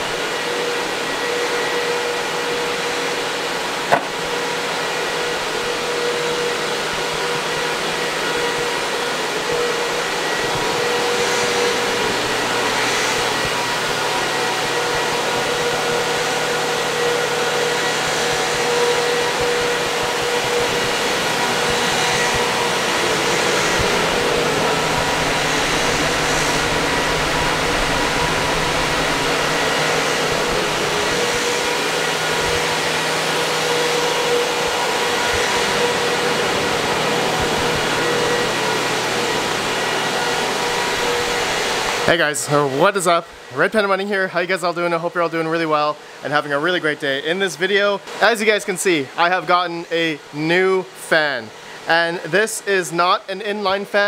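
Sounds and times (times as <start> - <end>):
cooling fans whirring: 0.0 - 54.0
steady tones: 17.0 - 44.0.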